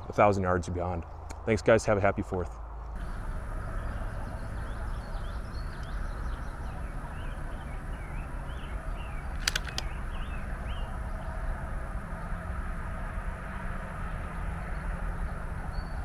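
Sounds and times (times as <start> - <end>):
low steady rumble: 0.0 - 16.0
small birds chirping: 2.4 - 11.6
sharp clicks: 9.3 - 10.0.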